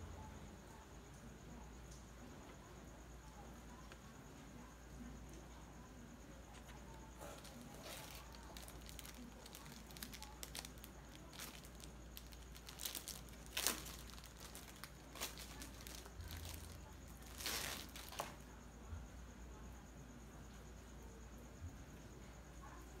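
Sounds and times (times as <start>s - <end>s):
paper and packaging rustling: 6.6s - 18.4s.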